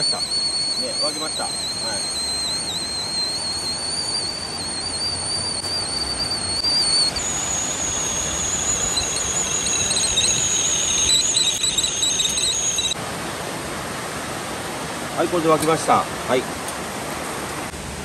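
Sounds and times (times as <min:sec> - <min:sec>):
kettle whistling: 0:00.0 - 0:13.0
creek rushing: 0:00.0 - 0:18.0.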